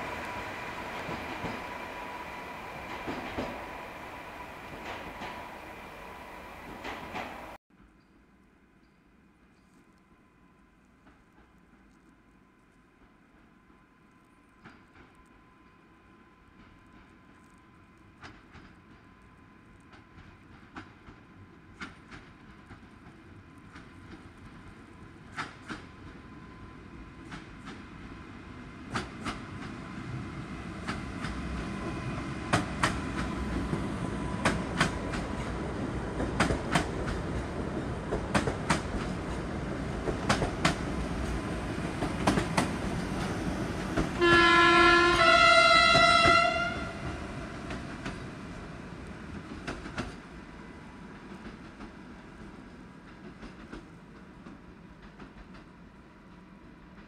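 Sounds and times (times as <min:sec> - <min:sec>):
train rumbling past: 0:00.0 - 0:07.6, 0:14.6 - 0:57.0
wheels clicking over rail joints: 0:32.5 - 0:48.4
two-tone train horn: 0:44.2 - 0:47.4.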